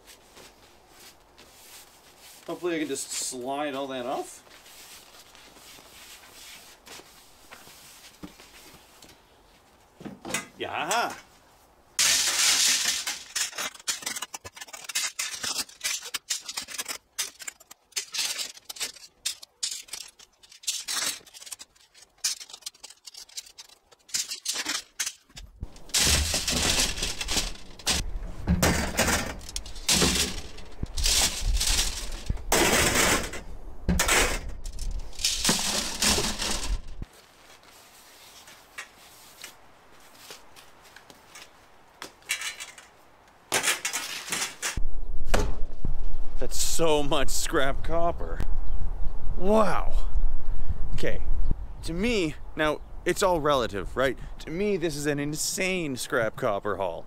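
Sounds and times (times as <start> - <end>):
low steady hiss: 0.0 - 14.2, 24.1 - 57.0
copper pipe clinking and scraping: 12.0 - 37.0.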